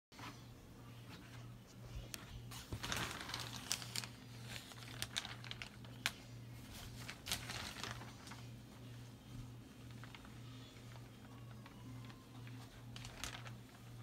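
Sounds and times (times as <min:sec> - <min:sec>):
low steady hum: 0:00.2 - 0:14.0
shower curtain rustling: 0:02.5 - 0:05.8, 0:06.6 - 0:08.5, 0:11.6 - 0:14.0.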